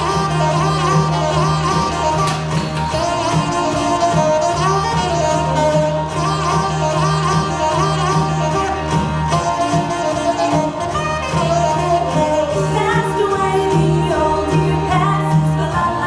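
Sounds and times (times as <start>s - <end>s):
pulsing bass: 0.0s - 16.0s
song with singing: 11.8s - 16.0s.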